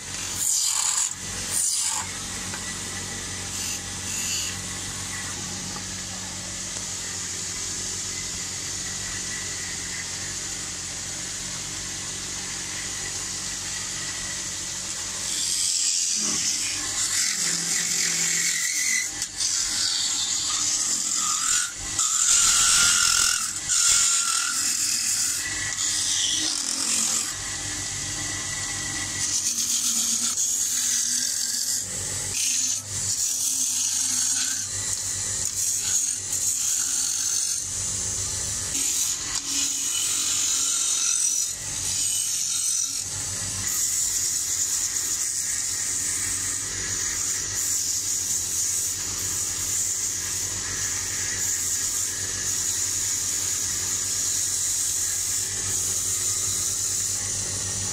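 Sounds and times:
gouge cutting spinning wood: 0:00.0 - 0:57.9
wood lathe humming: 0:00.0 - 0:57.9.

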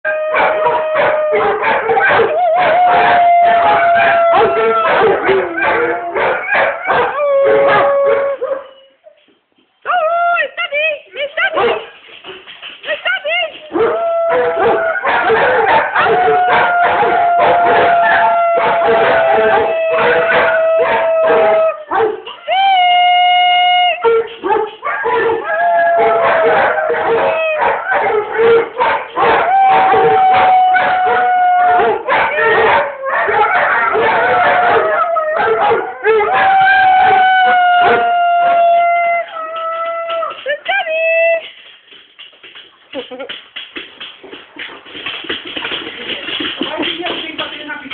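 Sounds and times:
dog howling: 0:00.1 - 0:08.8, 0:13.7 - 0:22.1, 0:24.9 - 0:40.5.

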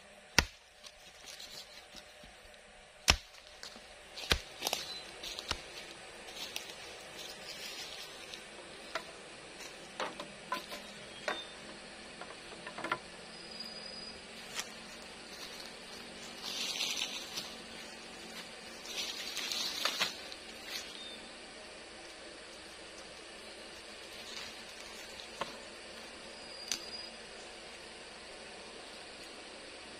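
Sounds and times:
bamboo poles knocking together: 0:10.0 - 0:11.4, 0:12.2 - 0:13.0
rustling scrapes: 0:15.3 - 0:21.0.

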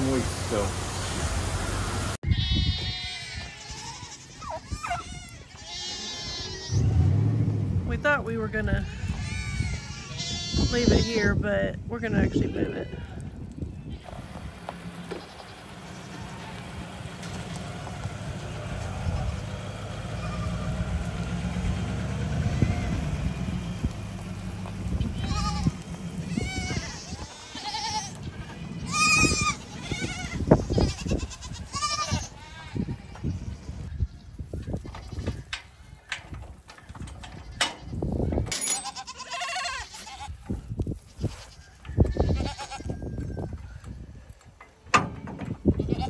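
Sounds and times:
goats bleating: 0:02.3 - 0:07.0, 0:08.8 - 0:11.3, 0:15.0 - 0:17.5, 0:25.0 - 0:33.9, 0:38.8 - 0:40.4, 0:41.1 - 0:42.9
pickup engine running: 0:14.1 - 0:26.6.

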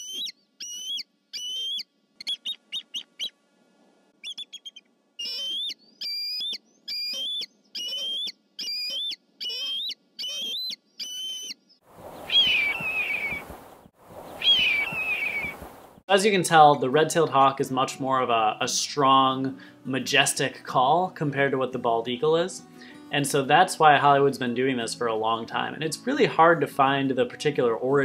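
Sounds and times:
eagle cackling call: 0:04.2 - 0:11.6.

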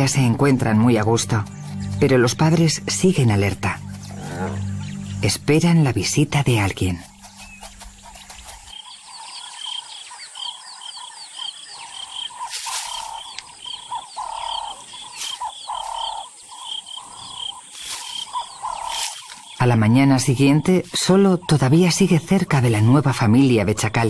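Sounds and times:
lower animal calls: 0:04.0 - 0:05.0, 0:09.4 - 0:19.4.

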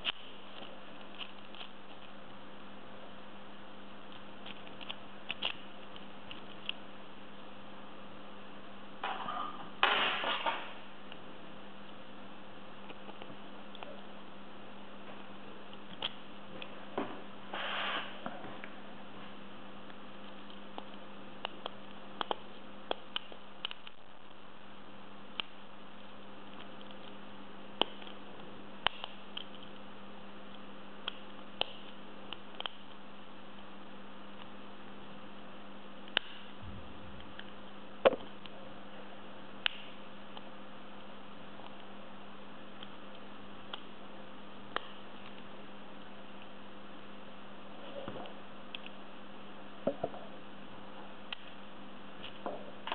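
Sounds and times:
steady hum: 0:00.0 - 0:52.9
metal scrape: 0:17.5 - 0:18.2.

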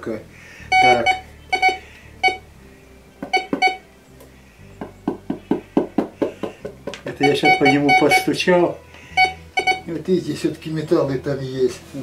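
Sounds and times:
metal detector beeps: 0:00.7 - 0:02.4, 0:03.3 - 0:03.8, 0:07.2 - 0:08.4, 0:09.2 - 0:09.9
taps on metal detector: 0:03.2 - 0:03.8.

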